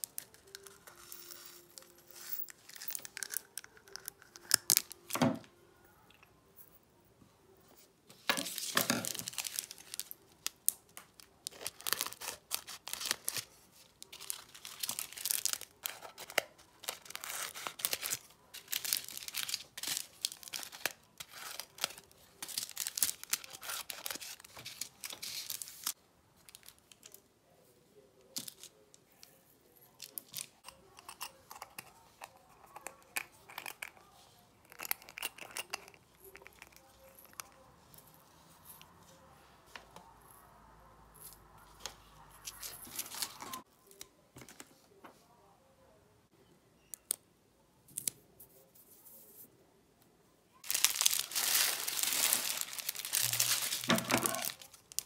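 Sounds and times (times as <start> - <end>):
plastic bags crinkling: 8.3 - 27.1, 50.6 - 55.0.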